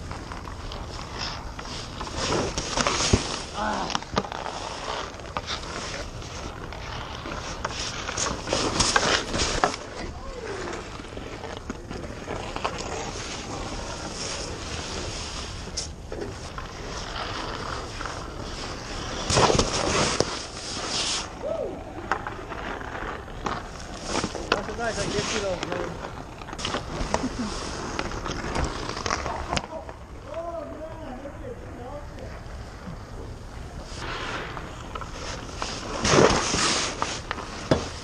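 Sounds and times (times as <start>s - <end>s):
skates scraping on ice: 0.0s - 38.0s.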